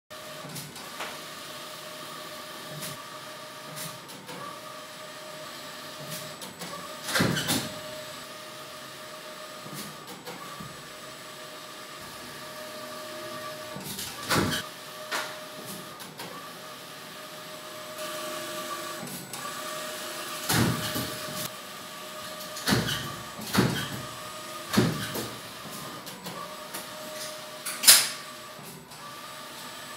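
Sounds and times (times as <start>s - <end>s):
printer motor whine: 0.2s - 29.9s.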